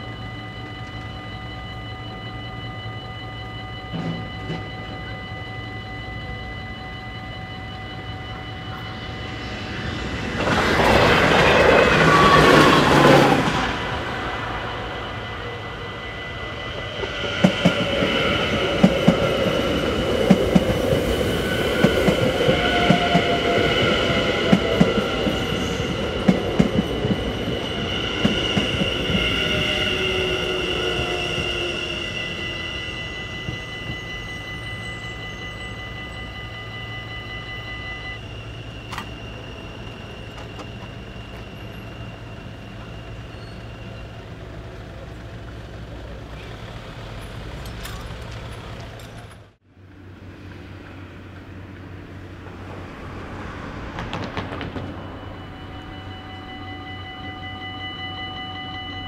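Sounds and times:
low hum: 0.0s - 44.2s
high steady whine: 0.0s - 46.9s
train wheels clicking over rail joints: 46.4s - 49.5s.

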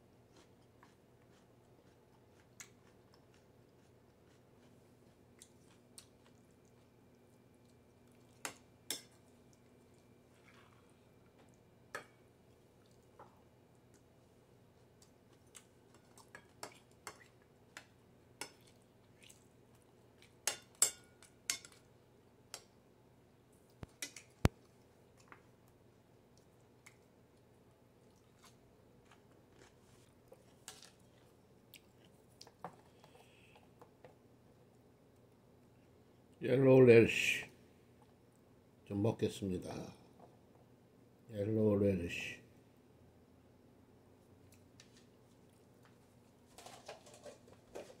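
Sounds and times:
quiet chewing: 0.0s - 22.8s, 23.5s - 36.4s, 37.9s - 38.5s, 44.2s - 48.0s.

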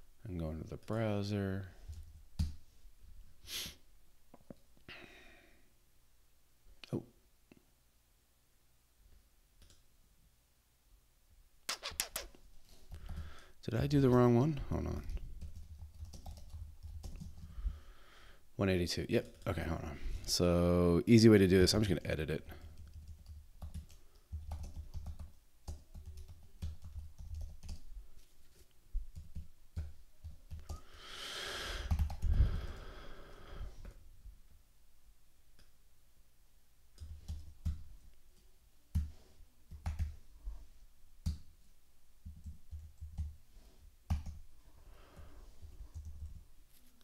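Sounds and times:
computer keyboard typing: 15.1s - 17.5s, 22.6s - 27.8s, 29.1s - 30.8s, 31.8s - 32.3s, 37.0s - 37.8s, 39.7s - 40.2s, 42.2s - 43.4s, 44.1s - 44.4s, 45.9s - 46.4s.

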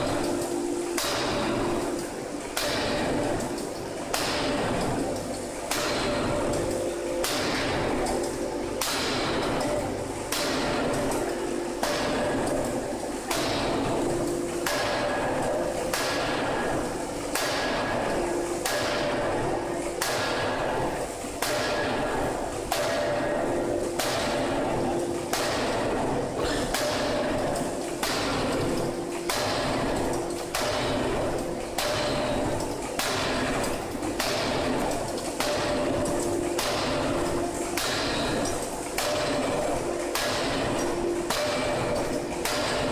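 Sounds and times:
forging hammer striking steel: 1.0s - 1.6s, 2.6s - 3.1s, 4.1s - 4.6s, 5.7s - 6.3s, 7.2s - 8.0s, 8.8s - 9.6s, 10.3s - 11.1s, 11.8s - 12.4s, 13.3s - 13.8s, 14.6s - 15.3s, 15.9s - 16.5s, 17.4s - 17.9s, 18.6s - 19.2s, 20.0s - 20.7s, 21.4s - 22.0s, 22.7s - 23.3s, 24.0s - 24.5s, 25.3s - 25.9s, 26.5s - 27.4s, 28.0s - 28.6s, 29.3s - 31.2s, 31.8s - 36.0s, 36.6s - 37.2s, 37.8s - 42.9s.

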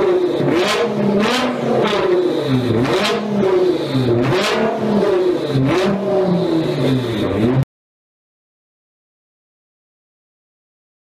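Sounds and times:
car engine revving: 0.0s - 7.7s.

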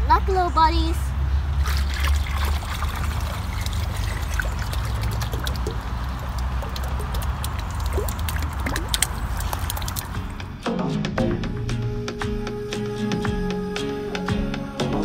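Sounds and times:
water splashing into pond: 1.5s - 10.4s
background music: 8.7s - 15.0s.

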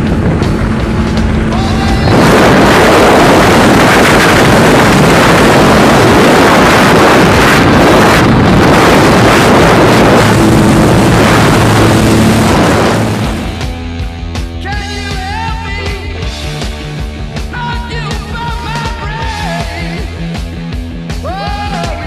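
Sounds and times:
rushing wind buffeting microphone: 0.0s - 14.3s
aircraft engine noise: 0.0s - 21.1s.

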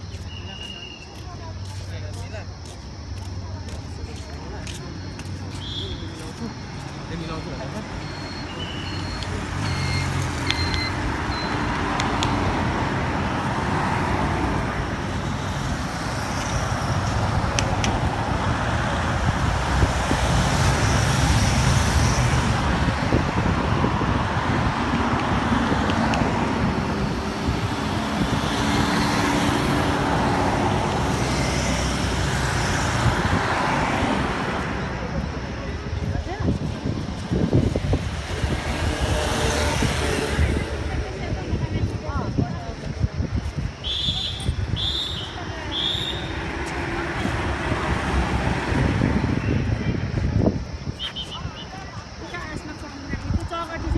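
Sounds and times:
motorcycles and cars driving past: 9.0s - 35.8s, 36.7s - 41.8s, 45.4s - 50.4s.

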